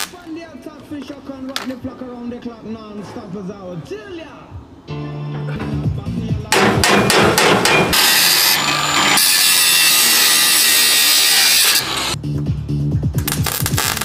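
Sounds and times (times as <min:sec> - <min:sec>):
angle grinder grinding steel: 0:07.7 - 0:12.2.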